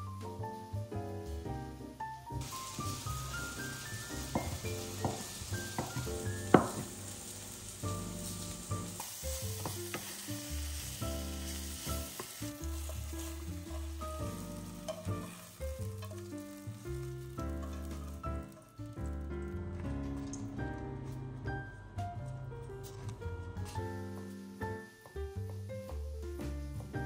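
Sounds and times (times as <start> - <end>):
eggplant sizzling in oil: 1.5 - 19.1, 23.6 - 26.0
wooden spatula stirring: 4.2 - 7.0, 8.3 - 10.2, 11.6 - 18.1
knife knocking on cutting board: 4.4 - 6.9.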